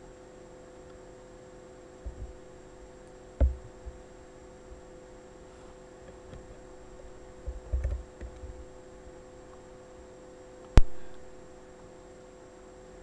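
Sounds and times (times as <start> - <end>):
steady electrical hum: 0.0 - 13.0
dull bumps: 2.0 - 2.5, 3.4 - 4.8.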